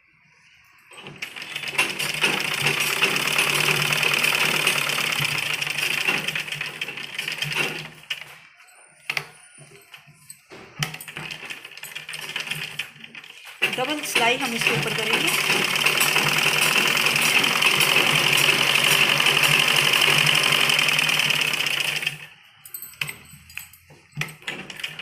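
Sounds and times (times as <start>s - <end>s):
sewing machine stitching: 0.9s - 8.3s, 10.8s - 22.3s, 24.2s - 25.0s.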